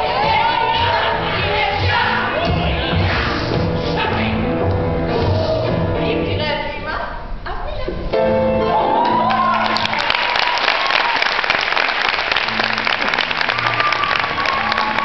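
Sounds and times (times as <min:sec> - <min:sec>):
audience applause: 0:08.9 - 0:15.0.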